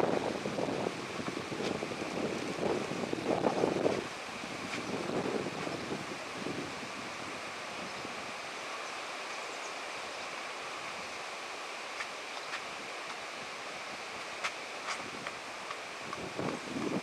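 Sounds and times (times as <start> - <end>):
wind noise on microphone: 0.0 - 8.6, 12.5 - 17.0.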